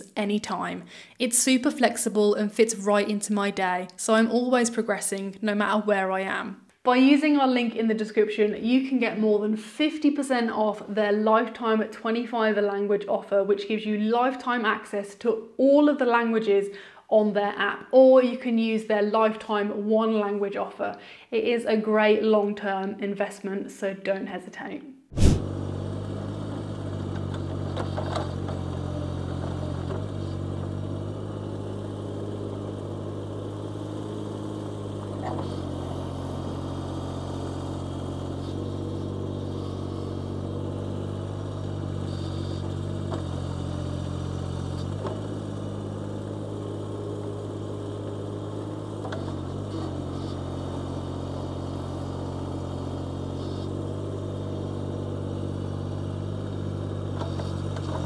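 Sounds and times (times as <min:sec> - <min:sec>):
excavator engine running: 0:25.2 - 0:58.0.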